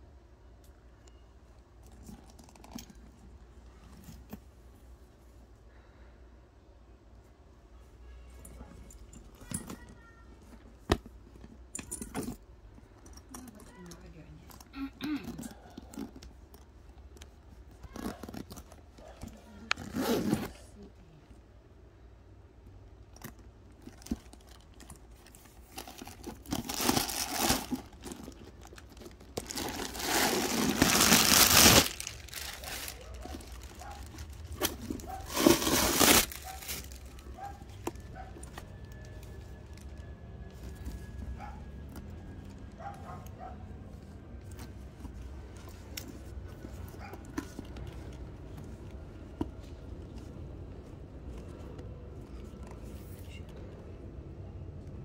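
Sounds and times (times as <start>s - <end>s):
handbag clicks: 1.8s - 3.2s, 8.8s - 20.5s
handbag crinkly rustling: 1.8s - 4.8s, 17.6s - 20.8s, 23.0s - 53.2s
zipper hardware clicking: 19.7s - 20.5s.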